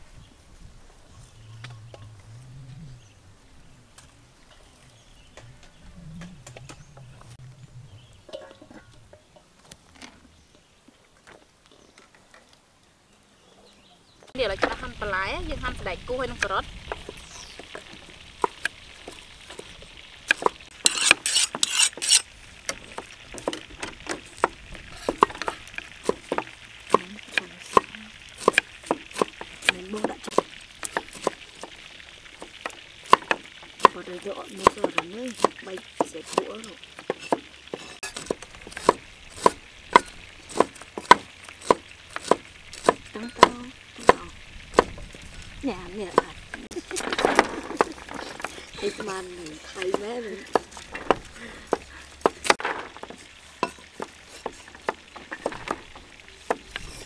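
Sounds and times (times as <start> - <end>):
cleavers chopping on wooden block: 22.8 - 31.8, 34.6 - 45.0, 49.8 - 55.9.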